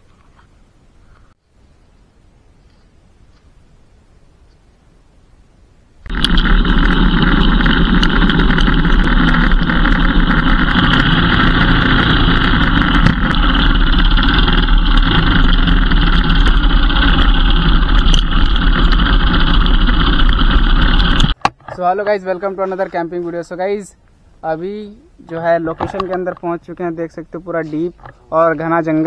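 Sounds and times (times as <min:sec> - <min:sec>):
motorcycle engine running: 0:06.0 - 0:21.4.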